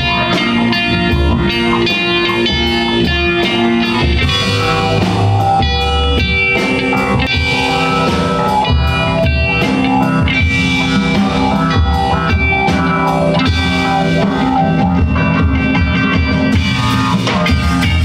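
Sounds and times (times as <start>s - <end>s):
bass guitar: 0.0s - 18.0s
drum kit beat: 0.0s - 18.0s
electric guitar: 0.0s - 18.0s.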